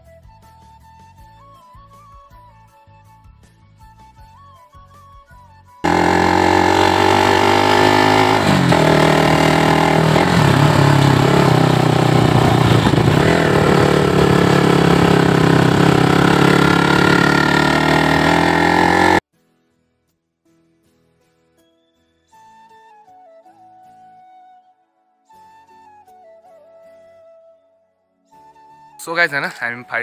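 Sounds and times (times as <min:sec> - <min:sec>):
motorcycle engine running: 0:05.8 - 0:19.2.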